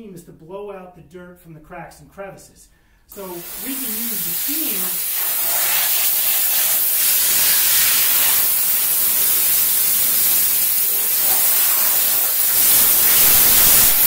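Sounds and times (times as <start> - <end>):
steam cleaner hissing: 3.1 - 14.0.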